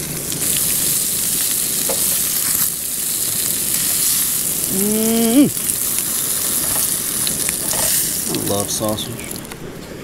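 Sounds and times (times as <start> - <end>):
sausage sizzling in a pan: 0.0 - 9.6
person humming: 4.7 - 5.6.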